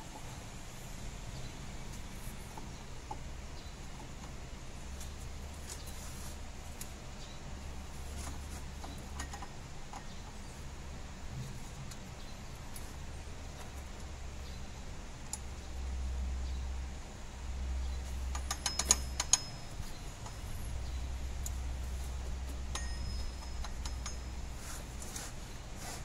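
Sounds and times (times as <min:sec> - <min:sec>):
steady low rumble: 0:00.0 - 0:25.8
metallic clicks and clinks: 0:18.2 - 0:21.6, 0:22.2 - 0:24.6.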